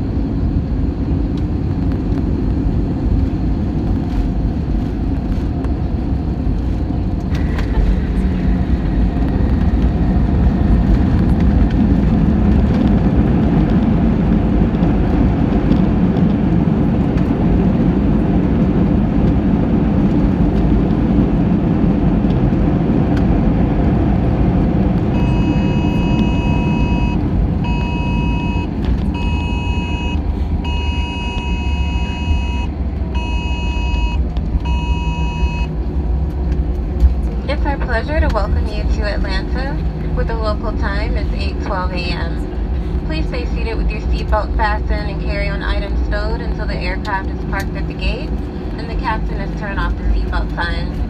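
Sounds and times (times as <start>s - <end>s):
low rumble of engines and wheels: 0.0s - 51.0s.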